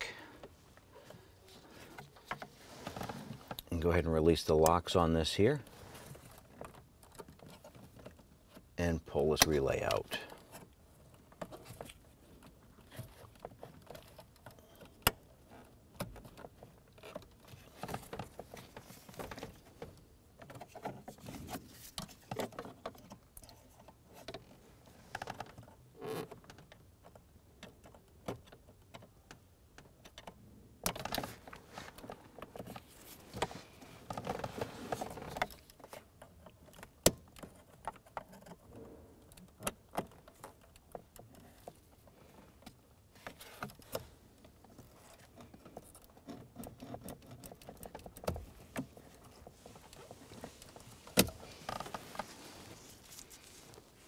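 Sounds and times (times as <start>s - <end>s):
small plastic clicks and rattles: 9.4s - 52.0s.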